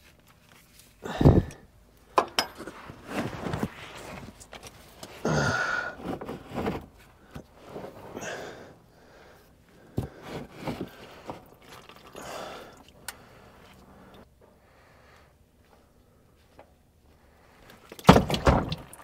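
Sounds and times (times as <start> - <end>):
hands handling metal parts: 0.0 - 5.2
rustling and scuffing on cardboard: 2.6 - 5.0.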